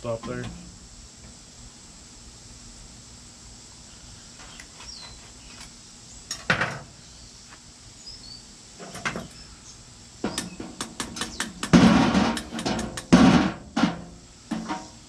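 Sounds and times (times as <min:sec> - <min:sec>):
metal mold clanking: 0:10.2 - 0:15.0.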